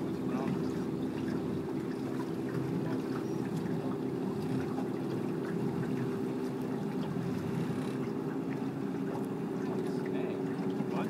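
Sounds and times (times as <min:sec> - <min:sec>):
boat engine humming: 0:00.0 - 0:11.0
water wash: 0:00.0 - 0:11.0.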